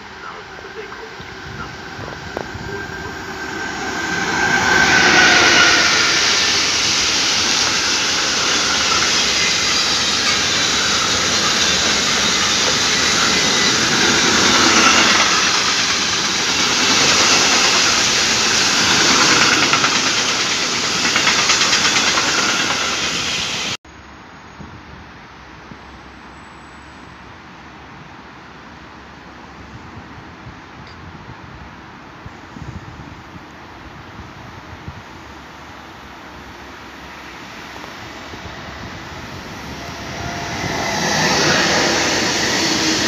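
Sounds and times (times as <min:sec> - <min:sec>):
electric locomotive whine: 0:00.0 - 0:24.6, 0:35.2 - 0:43.0.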